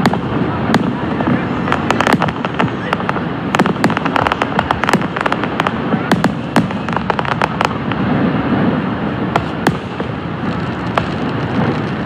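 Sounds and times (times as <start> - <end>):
fireworks bangs and crackling: 0.0 - 12.0.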